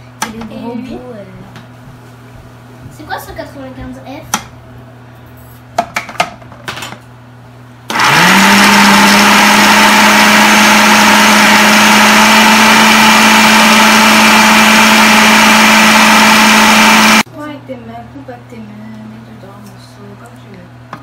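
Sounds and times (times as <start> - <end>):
food processor motor whirring: 7.9 - 17.3.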